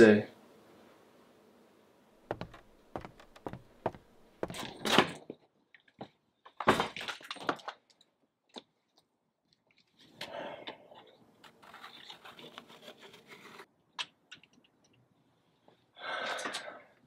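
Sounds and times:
footsteps: 0:02.2 - 0:04.8.

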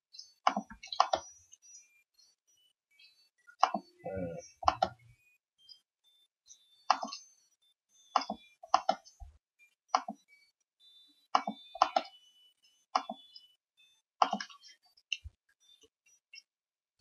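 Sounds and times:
computer mouse clicks: 0:00.5 - 0:01.3, 0:03.6 - 0:03.8, 0:04.7 - 0:05.0, 0:06.9 - 0:07.2, 0:08.2 - 0:09.1, 0:09.9 - 0:10.2, 0:11.4 - 0:12.1, 0:13.0 - 0:13.2, 0:14.2 - 0:15.2.

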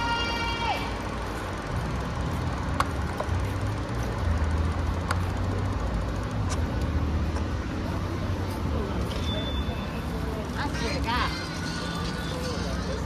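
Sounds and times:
city street traffic: 0:00.0 - 0:13.0
vehicle engine rumbling: 0:00.0 - 0:13.0.

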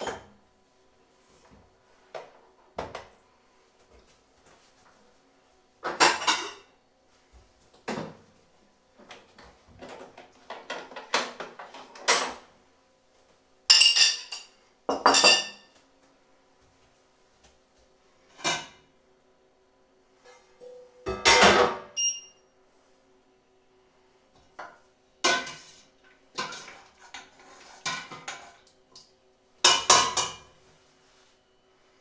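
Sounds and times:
faint steady hum: 0:00.0 - 0:32.0
crockery and cutlery clattering: 0:13.7 - 0:15.6.

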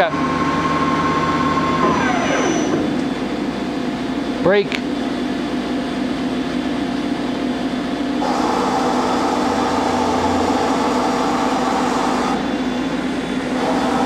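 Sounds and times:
machine hum: 0:00.0 - 0:14.0
lathe carriage whirring: 0:05.0 - 0:14.0.

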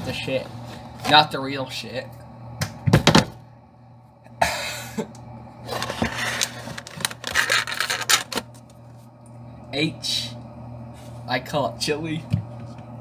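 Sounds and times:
low steady hum: 0:00.0 - 0:13.0
plastic bag crinkling: 0:05.7 - 0:08.6.

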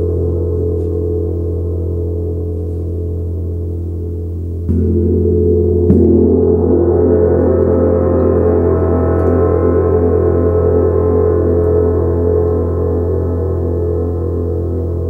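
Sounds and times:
gong ringing: 0:04.6 - 0:15.0.

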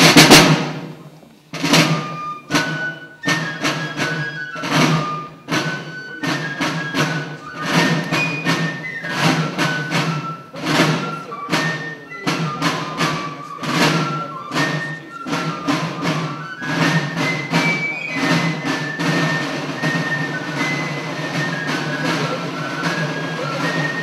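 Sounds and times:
sharp percussive strikes: 0:00.0 - 0:24.0.

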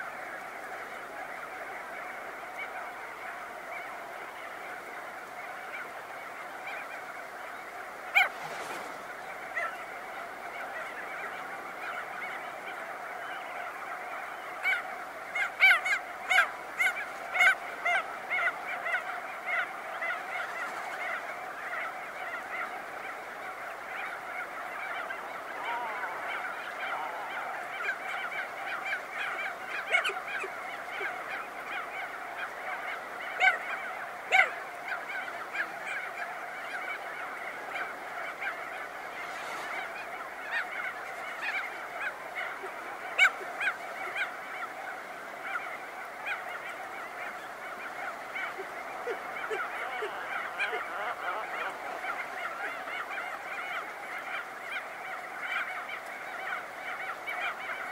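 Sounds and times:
dense chorus of seabird colony: 0:00.0 - 0:57.9
bird giving loud calls: 0:21.8 - 0:32.0, 0:47.4 - 0:55.9.

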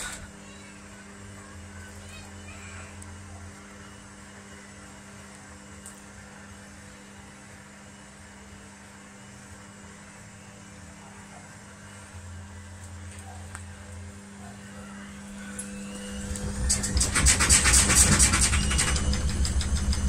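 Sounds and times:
washing machine motor hum: 0:00.0 - 0:20.0
deeper hum: 0:11.6 - 0:20.0.

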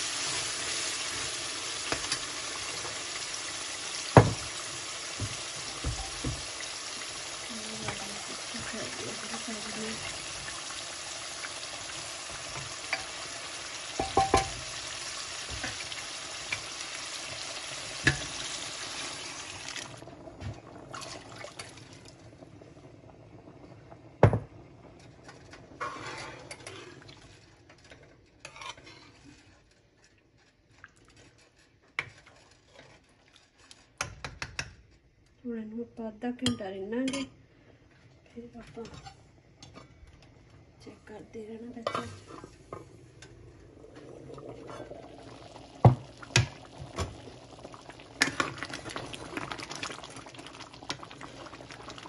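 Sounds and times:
beans sizzling in a metal pan: 0:00.0 - 0:22.0, 0:25.1 - 0:29.6, 0:44.7 - 0:52.0.

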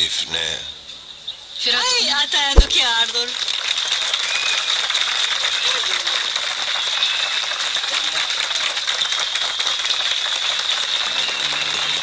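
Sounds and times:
crowd applauding: 0:03.4 - 0:12.0.

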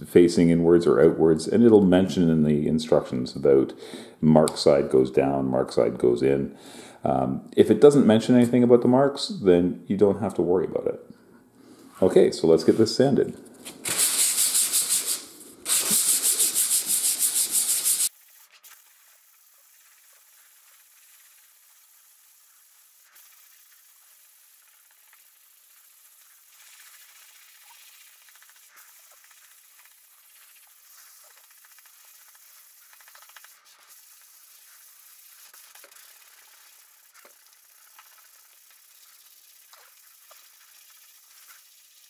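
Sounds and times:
faint hiss: 0:00.0 - 0:42.0
sandpaper rubbing on wood: 0:13.6 - 0:42.0.

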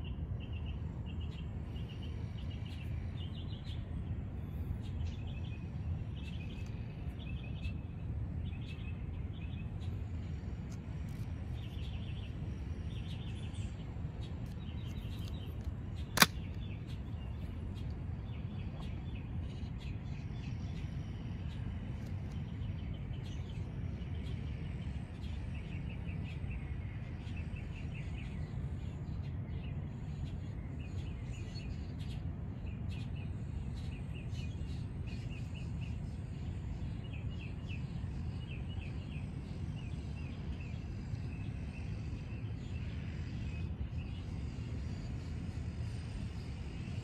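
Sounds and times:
small birds chirping trills: 0:00.0 - 0:47.0
steady low rumble: 0:00.0 - 0:47.0.

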